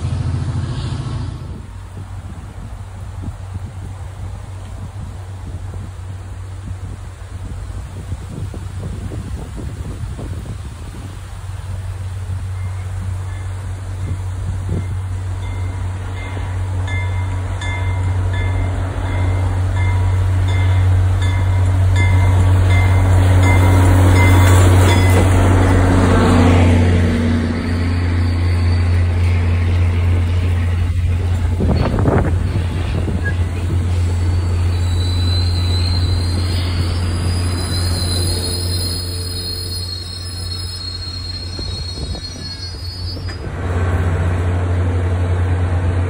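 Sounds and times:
diesel locomotive rumble: 0.0 - 46.0
wheel squeal: 27.5 - 29.7, 31.6 - 43.5.

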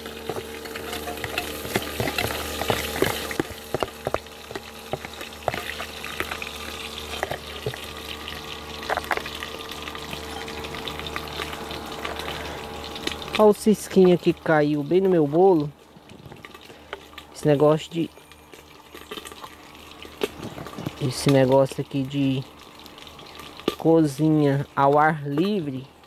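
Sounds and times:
boat engine drone: 0.0 - 19.0
spoon scraping and tapping bowl: 0.3 - 6.4.

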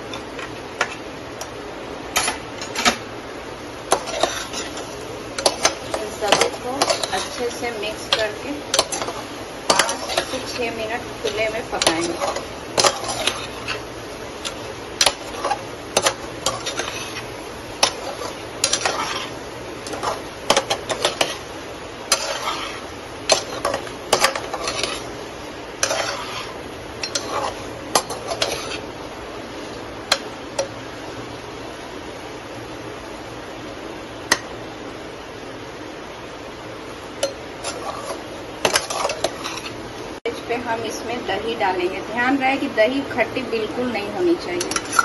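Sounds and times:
faint steady hiss: 0.0 - 45.0
metal spoon scraping pot: 3.9 - 21.5, 22.1 - 25.2, 25.8 - 28.9, 37.2 - 39.8, 44.6 - 45.0.

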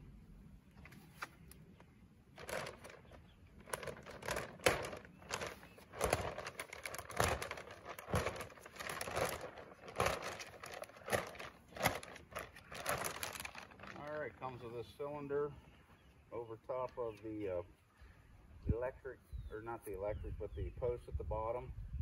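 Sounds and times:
plastic packaging crinkling: 2.3 - 14.5.

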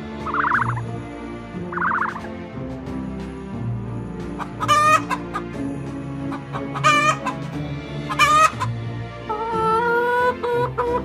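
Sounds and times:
soft background music: 0.0 - 11.0
loud chicken calls: 0.2 - 0.8, 1.7 - 2.3, 4.4 - 5.5, 6.3 - 7.5, 8.1 - 11.0.

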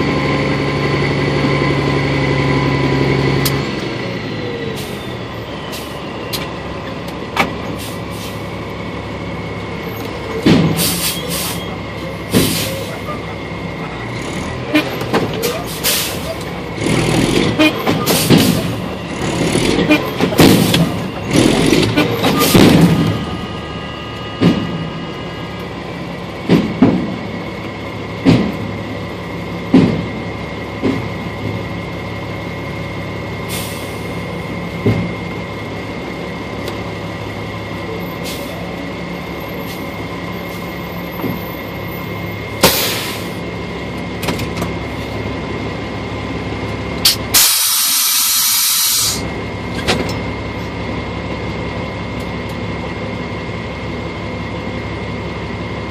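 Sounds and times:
truck engine running: 0.0 - 55.9
loud air hiss: 47.3 - 49.2.

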